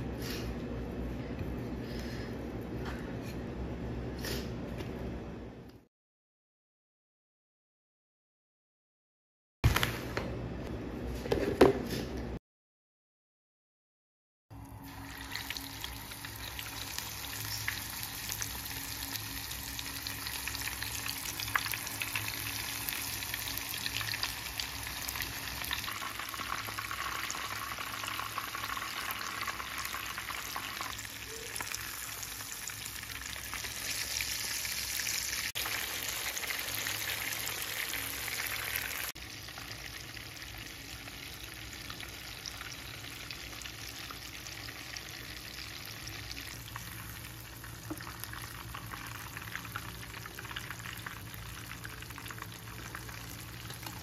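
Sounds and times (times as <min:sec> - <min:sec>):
fish sizzling in hot oil: 0:14.8 - 0:54.0.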